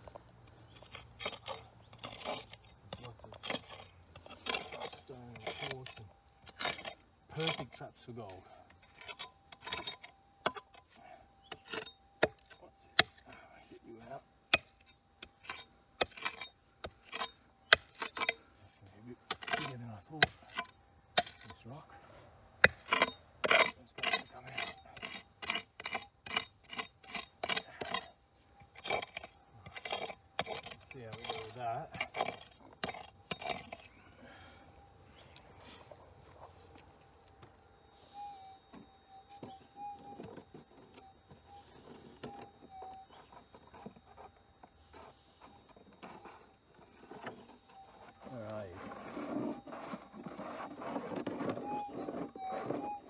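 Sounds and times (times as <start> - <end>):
digging tool scraping stony ground: 0.1 - 34.4, 38.1 - 53.0
metal detector hum: 26.9 - 53.0
metal detector blips: 36.4 - 53.0.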